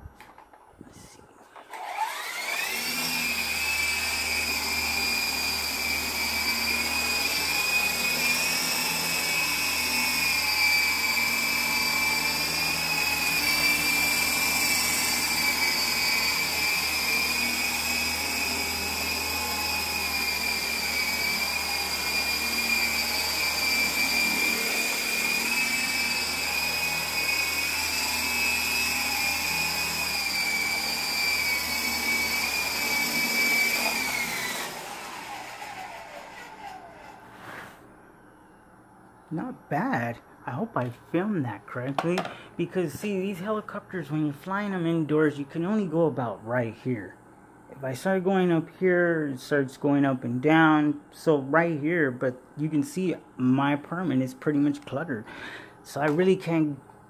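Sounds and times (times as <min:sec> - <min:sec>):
toy helicopter rotors whining: 0:01.7 - 0:37.3.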